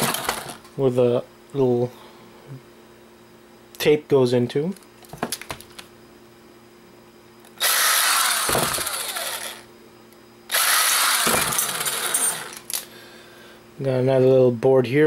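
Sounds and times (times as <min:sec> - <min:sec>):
power screwdriver running: 0:00.0 - 0:00.6, 0:07.6 - 0:09.6, 0:10.5 - 0:12.6.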